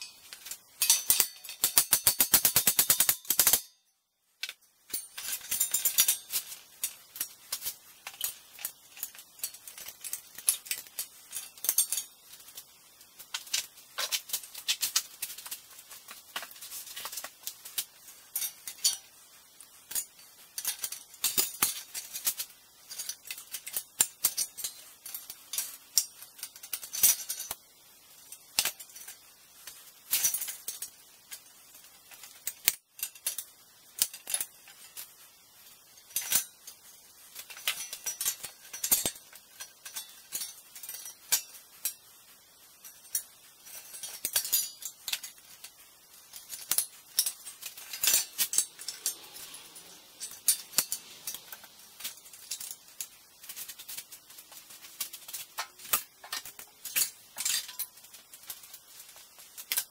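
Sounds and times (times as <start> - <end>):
sheet-metal blades clinking: 0.0 - 12.7, 16.4 - 22.3, 42.8 - 58.8.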